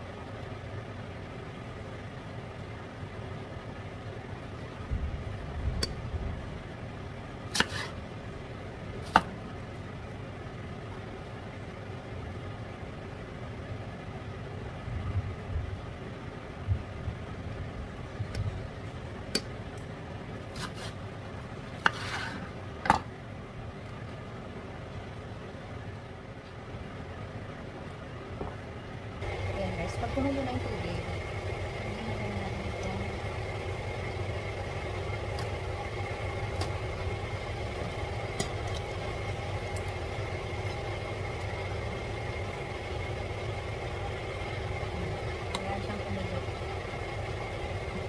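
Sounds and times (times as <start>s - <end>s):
steady low hum: 0.0s - 48.0s
knife cutting leaves on board: 7.5s - 8.0s, 20.5s - 21.0s, 21.8s - 22.5s.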